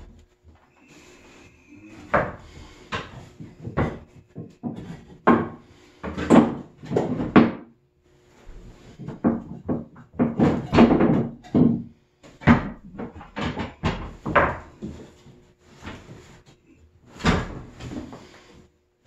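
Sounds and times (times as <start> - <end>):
wooden joints knocking together: 9.0 - 11.8.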